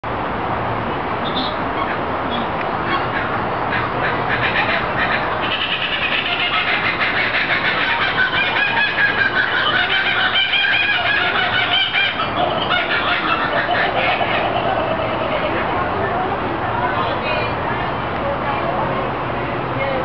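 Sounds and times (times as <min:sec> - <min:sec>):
kookaburra laughing call: 0:02.9 - 0:15.8.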